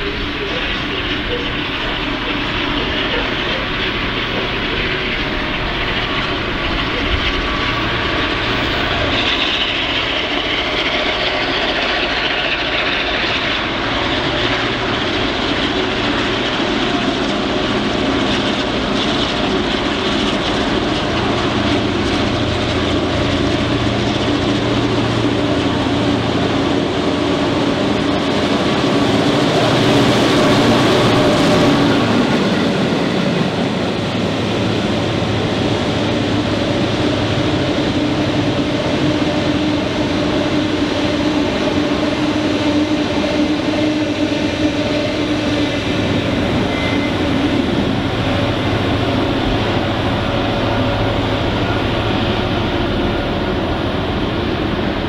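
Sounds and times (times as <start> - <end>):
locomotive engines droning: 0.0 - 55.0.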